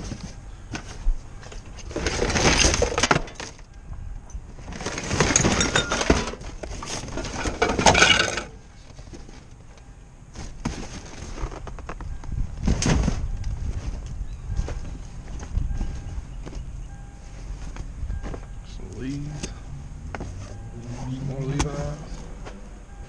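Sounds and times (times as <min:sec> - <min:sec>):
junk clattering in metal dumpster: 0:00.0 - 0:03.7, 0:04.6 - 0:09.4.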